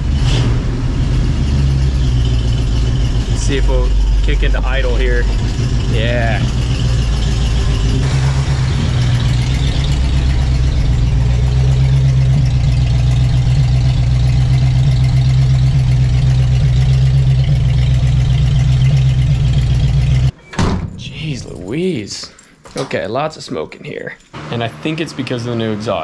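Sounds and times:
car engine idling: 0.0 - 20.3.

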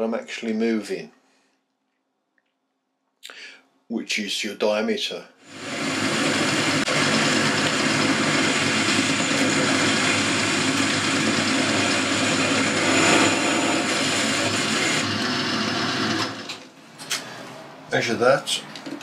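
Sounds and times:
lathe motor and gear hum: 5.6 - 16.7.

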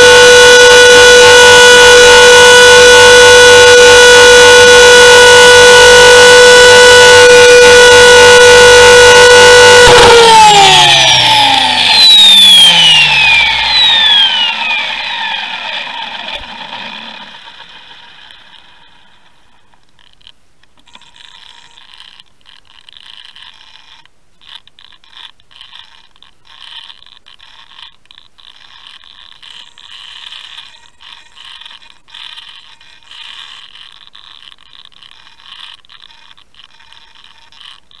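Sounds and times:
rc helicopter whirring: 0.0 - 19.6.

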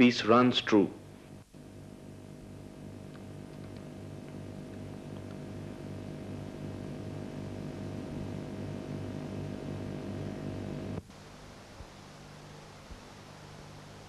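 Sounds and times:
faint hum: 0.0 - 14.0
lathe humming with low throb: 0.0 - 14.0.

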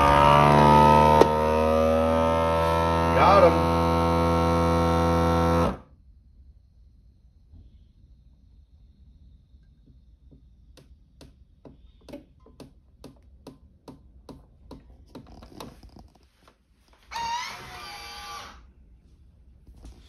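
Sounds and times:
vacuum sealer ticking: 0.0 - 5.8.

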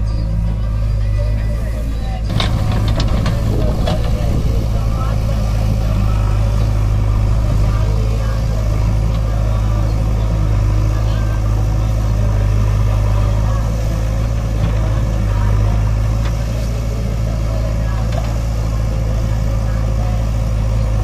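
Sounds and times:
backhoe digging soil: 0.0 - 21.0
diesel engine droning: 0.0 - 21.0.

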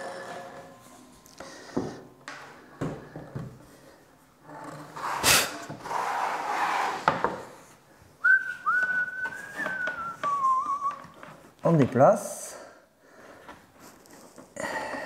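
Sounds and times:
man whistling: 8.2 - 11.2.

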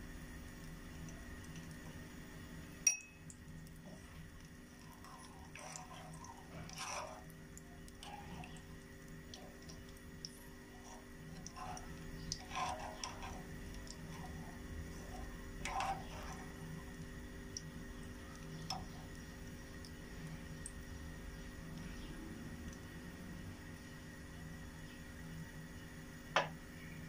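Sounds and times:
hot oil foaming: 0.5 - 23.4
metal spoon scraping frying pan: 5.1 - 7.3, 10.8 - 16.5.

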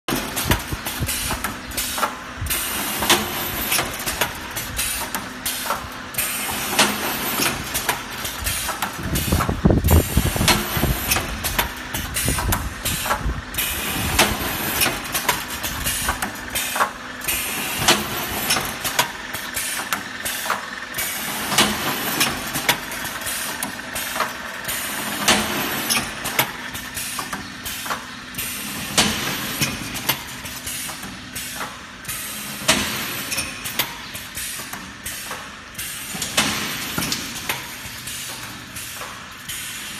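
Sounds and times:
steady machine hum: 0.1 - 39.9
heavy machine rumble: 6.4 - 27.0.

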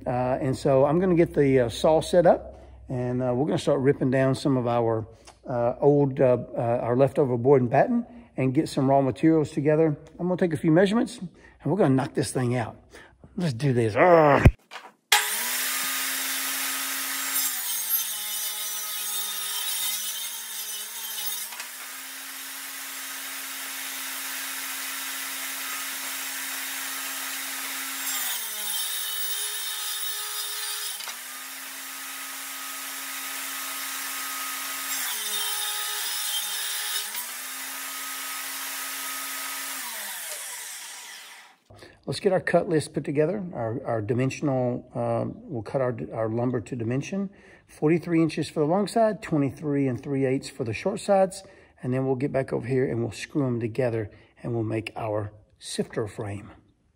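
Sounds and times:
table saw ripping lumber: 14.5 - 41.7.

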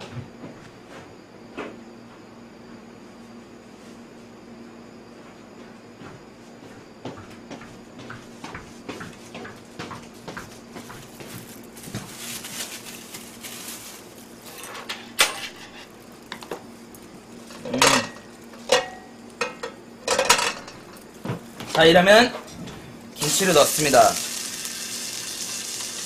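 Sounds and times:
faint steady hum: 0.0 - 26.0
plastic gloves rustling: 10.9 - 14.8
utensils clinking on a table: 17.6 - 20.9.

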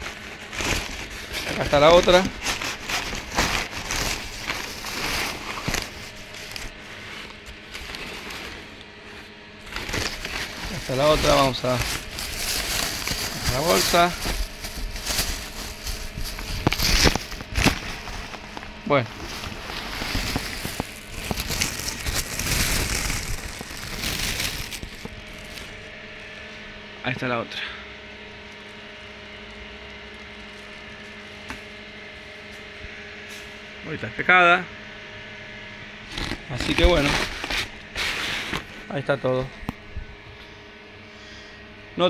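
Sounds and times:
plastic packaging crinkling: 0.0 - 26.4, 28.4 - 31.5, 36.1 - 39.1
cardboard and plastic rustling: 0.0 - 26.5, 28.4 - 32.7, 36.1 - 40.4.

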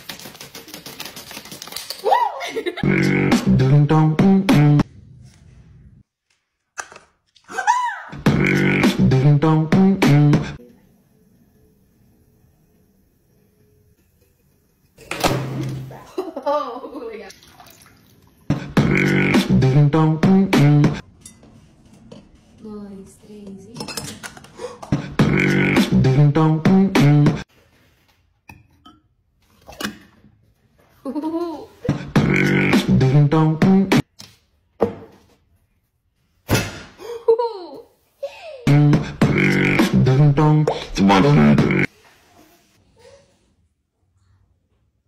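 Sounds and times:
beatbox mouth sounds: 2.8 - 4.8, 8.2 - 10.6, 18.5 - 21.0, 24.8 - 27.4, 31.9 - 34.0, 38.7 - 41.9.

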